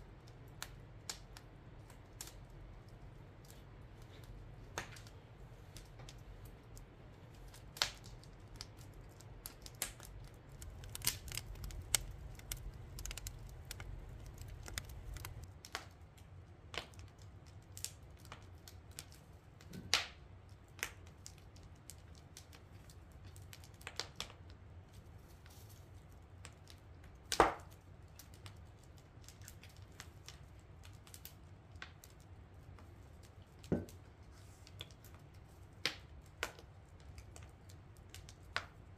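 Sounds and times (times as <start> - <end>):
wood fire crackling and popping: 0.0 - 38.9
low rumble: 10.6 - 15.4.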